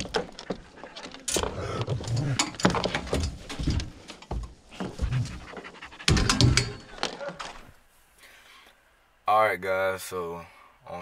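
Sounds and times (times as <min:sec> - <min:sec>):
dogs panting: 0:04.8 - 0:07.6.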